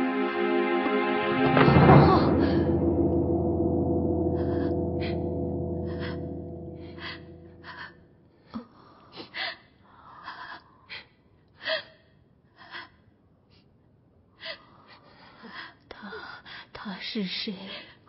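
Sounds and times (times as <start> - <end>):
gong ringing: 0.0 - 8.0.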